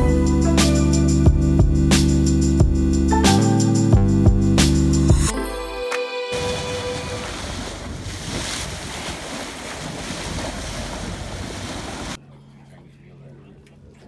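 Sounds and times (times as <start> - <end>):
water rushing along hull: 6.3 - 12.2.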